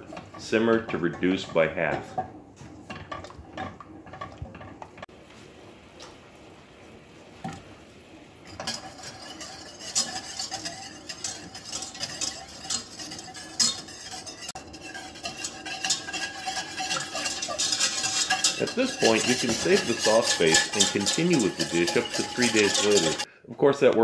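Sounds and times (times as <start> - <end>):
utensil scraping metal pot: 0.0 - 5.1, 8.4 - 23.3
sauce bubbling and sizzling: 0.0 - 19.1.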